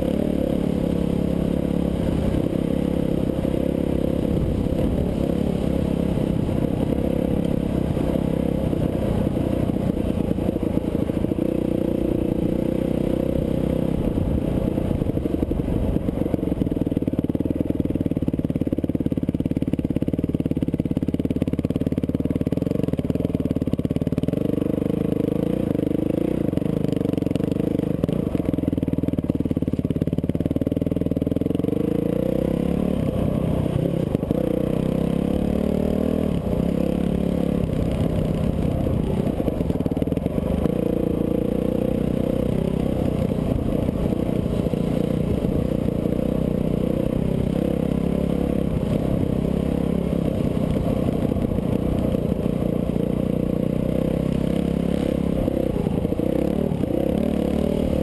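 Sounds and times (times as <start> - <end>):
dirt bike engine revving: 31.4 - 52.8, 53.4 - 58.0.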